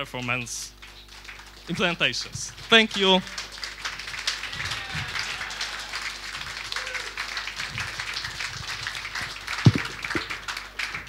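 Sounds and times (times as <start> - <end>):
audience applauding: 0.8 - 11.0
low thump: 9.7 - 10.3.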